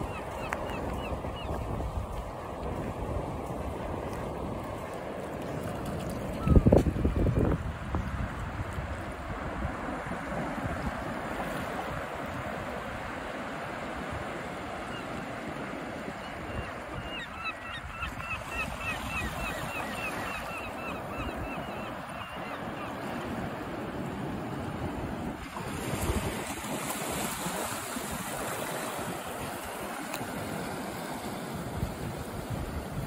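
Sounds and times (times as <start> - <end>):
wind on microphone: 0.0 - 13.2, 23.0 - 30.8, 31.5 - 33.0
surf washing on shore: 0.0 - 33.0.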